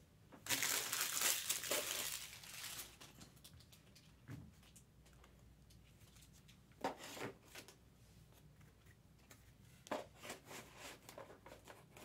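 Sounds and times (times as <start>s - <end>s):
trading cards rustling: 0.5s - 3.1s.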